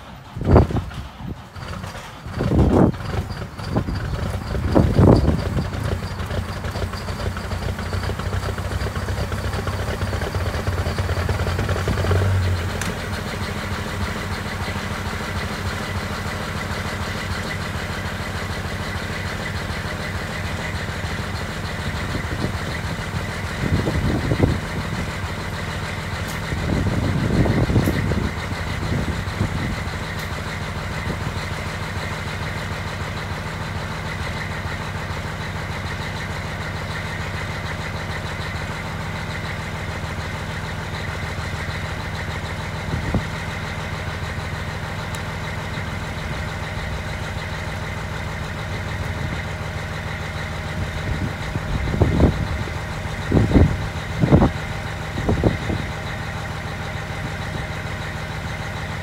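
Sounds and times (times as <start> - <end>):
diesel engine idling: 0.0 - 59.0.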